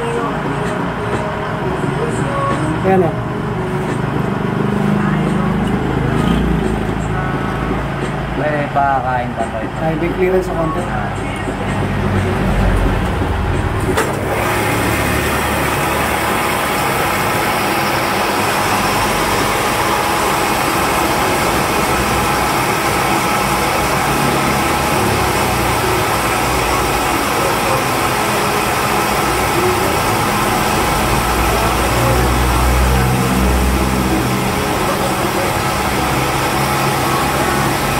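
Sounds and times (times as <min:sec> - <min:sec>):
milling machine hum: 0:00.0 - 0:37.9
end mill cutting metal: 0:11.3 - 0:37.9.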